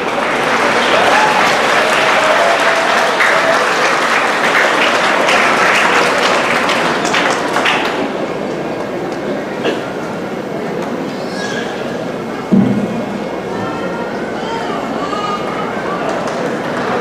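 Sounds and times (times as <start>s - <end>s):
audience applauding: 0.0s - 9.3s, 15.4s - 17.0s.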